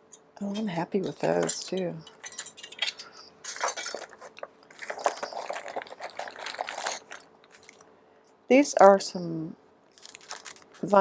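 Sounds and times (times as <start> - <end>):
plastic packaging crinkling: 2.8 - 7.9, 9.9 - 11.0.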